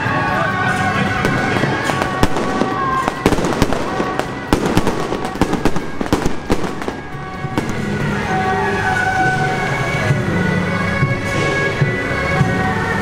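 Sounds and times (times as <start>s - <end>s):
reedy wind instrument notes: 0.0s - 13.0s
firecrackers popping: 0.8s - 8.2s.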